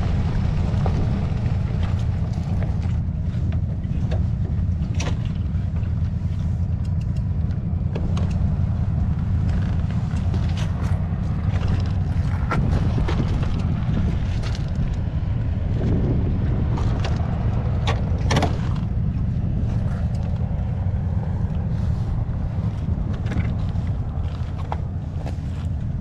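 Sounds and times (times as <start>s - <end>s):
engine idling: 0.0s - 26.0s
wind on microphone: 0.0s - 26.0s
sharp clicks: 6.8s - 7.3s.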